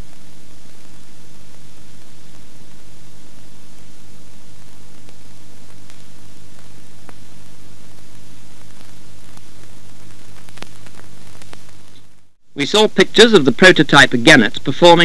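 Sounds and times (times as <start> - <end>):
faint crackles: 0.0 - 15.0
low mains hum: 0.0 - 15.0
steady hiss: 0.0 - 15.0.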